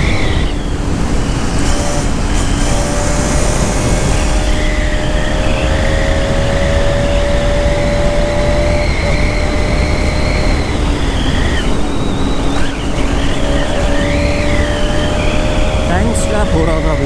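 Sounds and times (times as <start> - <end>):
motorcycle engine at high revs: 0.0 - 17.0
wind rush: 0.0 - 17.0.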